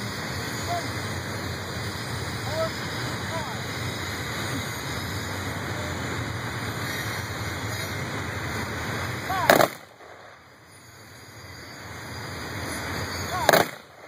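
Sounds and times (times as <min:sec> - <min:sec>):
passing train rumble: 0:00.0 - 0:14.0
rifle shot: 0:09.4 - 0:10.3, 0:13.4 - 0:14.0.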